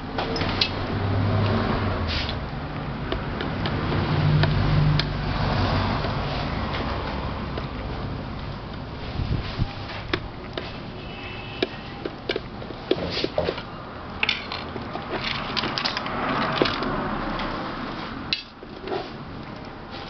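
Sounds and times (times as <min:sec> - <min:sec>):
steady background noise: 0:00.0 - 0:20.0
clicks and knocks on plastic: 0:11.6 - 0:17.0.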